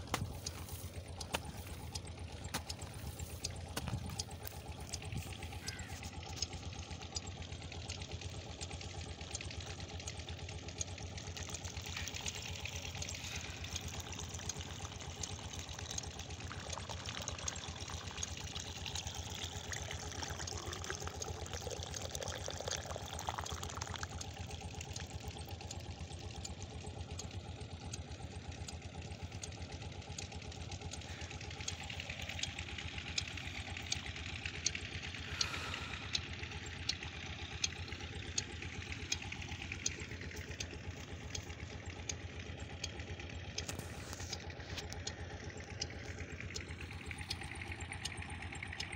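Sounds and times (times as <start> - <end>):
water trickling and pouring: 0.0 - 27.3, 30.7 - 41.8
steady engine hum: 0.0 - 48.9.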